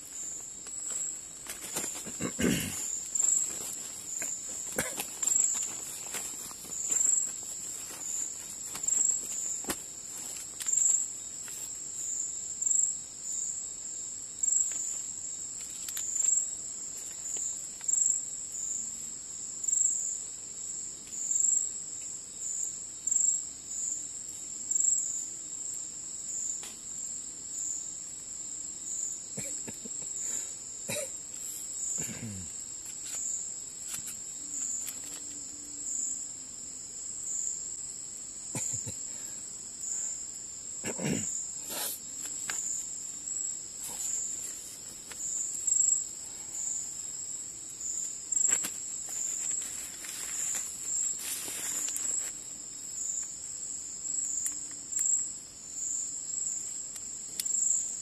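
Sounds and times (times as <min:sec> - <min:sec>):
night insects chirping: 0:00.0 - 0:58.0
magazine paper rustling: 0:48.5 - 0:52.2.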